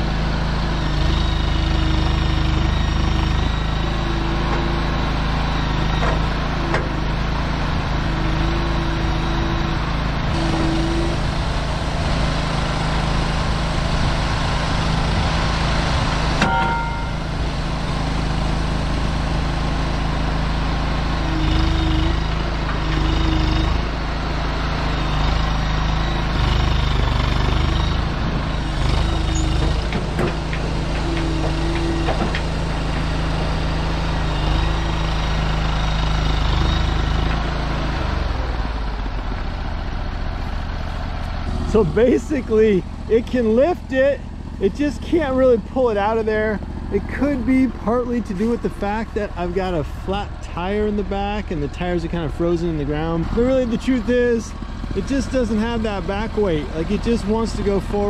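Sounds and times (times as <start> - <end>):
small engine under heavy load: 0.0 - 58.0
short tones: 16.4 - 17.4
brief squeal: 27.8 - 29.8.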